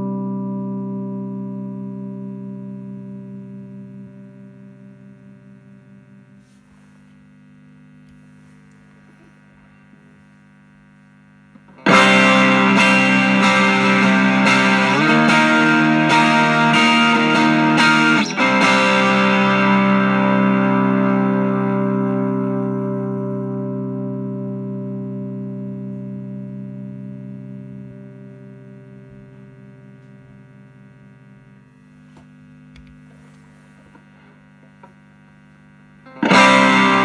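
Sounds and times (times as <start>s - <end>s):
overdriven electric guitar chords: 0.0s - 37.0s.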